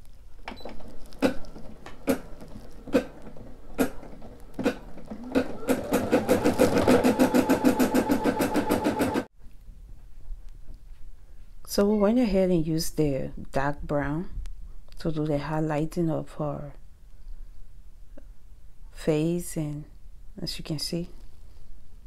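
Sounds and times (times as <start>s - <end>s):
embroidery machine stitching: 0.6s - 9.3s.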